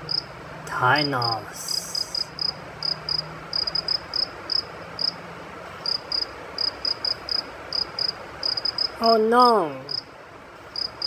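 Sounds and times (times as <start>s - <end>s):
cricket chirping: 0.0s - 0.3s, 1.2s - 5.2s, 5.8s - 10.1s, 10.7s - 11.0s.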